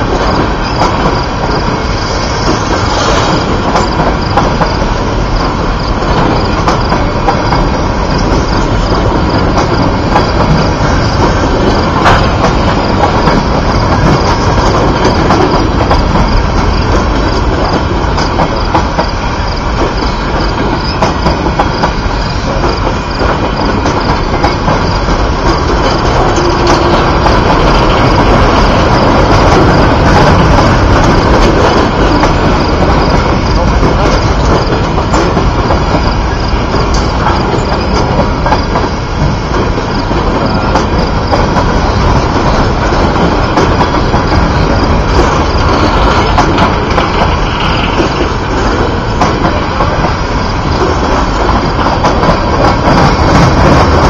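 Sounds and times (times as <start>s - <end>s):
train wheels rumbling on rail: 0.0s - 54.0s
clicking over rail joints: 2.4s - 54.0s.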